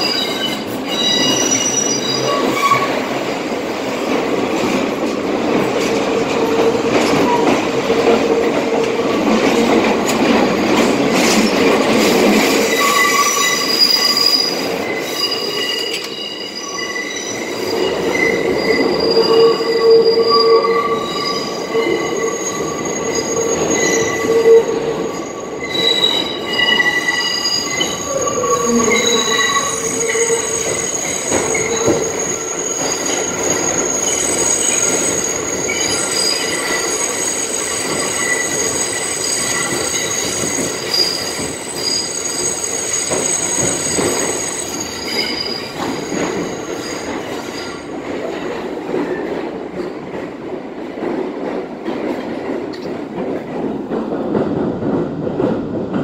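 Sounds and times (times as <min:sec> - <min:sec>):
train wheels squealing: 0:00.0 - 0:03.0, 0:12.6 - 0:47.9
train running noise: 0:00.0 - 0:56.0.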